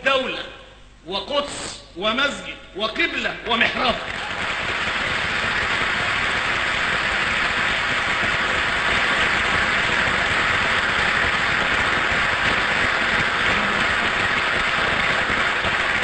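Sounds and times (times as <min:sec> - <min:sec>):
large audience applauding: 0:03.9 - 0:16.0.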